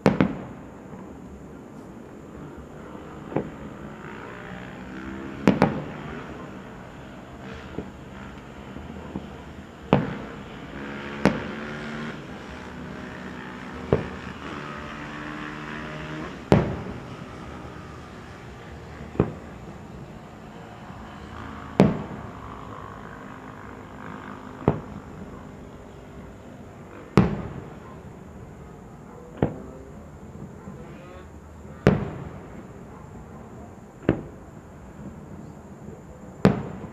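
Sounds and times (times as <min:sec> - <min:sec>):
firework shells bursting: 0:05.2 - 0:06.9, 0:07.6 - 0:12.2, 0:13.6 - 0:17.4, 0:18.2 - 0:20.2, 0:21.6 - 0:22.4, 0:24.5 - 0:25.3, 0:27.1 - 0:27.8.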